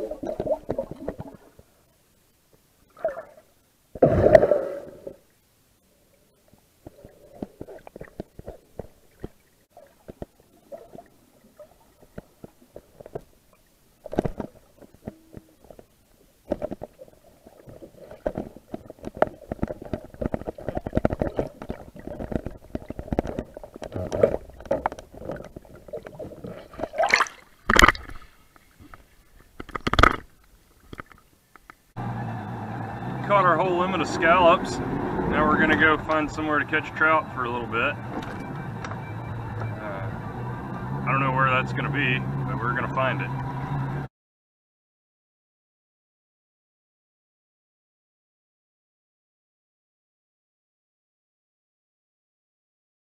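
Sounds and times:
water gurgling against camera case: 0.0s - 31.9s
loud splashes: 4.0s - 5.2s, 26.5s - 28.4s.

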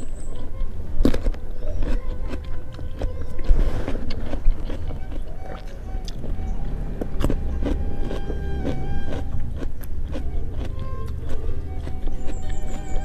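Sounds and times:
chewing crunchy vegetables: 0.2s - 13.0s
low rumble: 4.6s - 11.1s.

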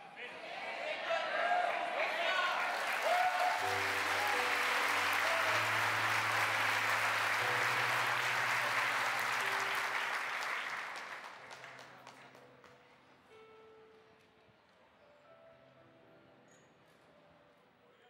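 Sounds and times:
congregation applauding: 0.5s - 12.8s.

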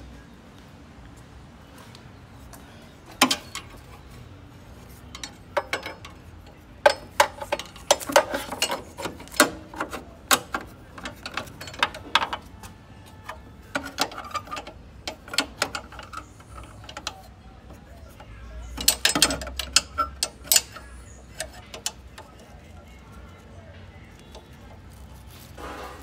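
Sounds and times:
hand tools clinking on metal: 3.2s - 4.0s, 4.9s - 23.4s.

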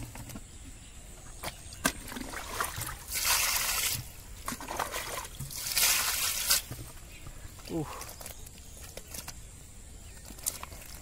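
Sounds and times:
water splashing pour: 2.0s - 6.8s.

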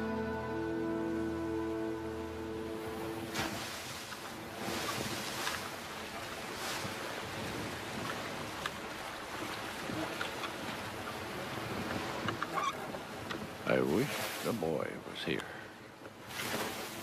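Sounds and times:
sea waves washing: 0.0s - 17.0s
wind over water: 0.0s - 17.0s.

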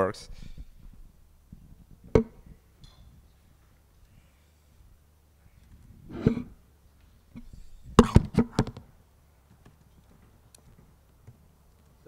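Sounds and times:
sharp knocks and clicks: 1.9s - 3.1s.

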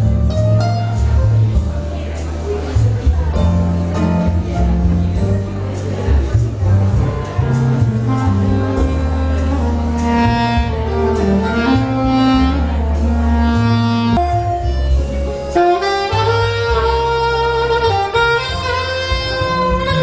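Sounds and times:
backing track with bass line: 0.0s - 20.0s
alto saxophone melody: 6.9s - 20.0s.

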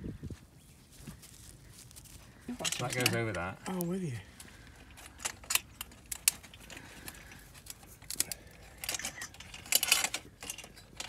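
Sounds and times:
metal pipe clinks and clicks: 4.8s - 11.0s.

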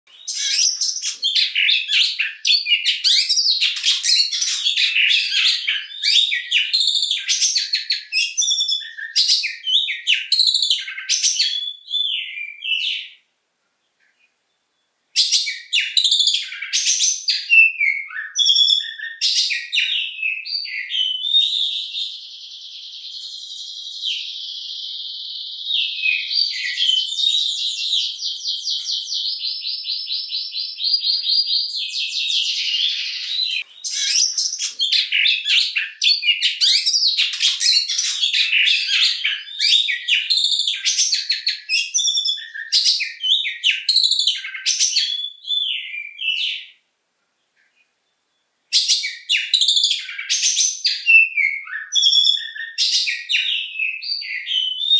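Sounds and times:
songbird singing: 0.1s - 54.9s.

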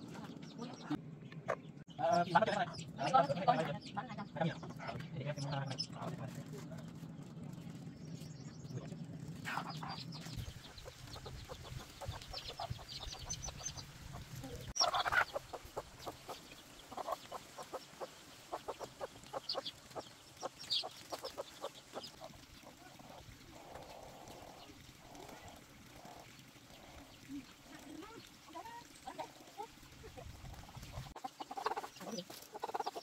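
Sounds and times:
chickens clucking: 0.0s - 6.9s, 9.4s - 33.0s
chicken squawk: 14.8s - 19.7s.

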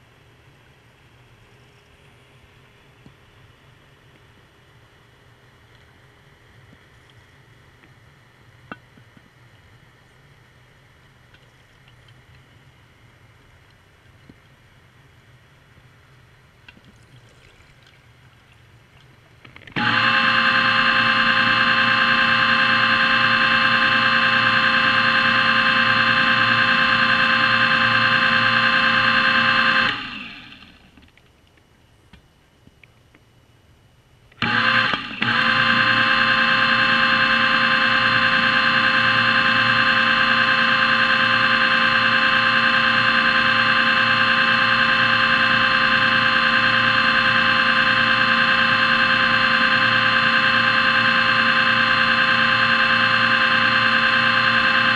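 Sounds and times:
underwater scooter motor whine: 19.0s - 31.2s, 34.3s - 54.9s.

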